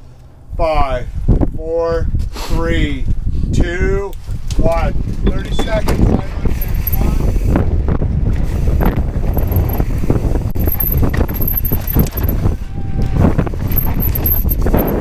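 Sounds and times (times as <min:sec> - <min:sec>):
wind buffeting microphone: 0:00.3 - 0:15.0
mountain bike rattling: 0:05.0 - 0:15.0.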